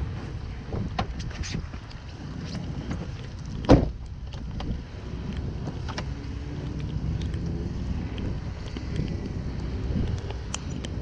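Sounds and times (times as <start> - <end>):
car door shutting: 3.7 - 4.0.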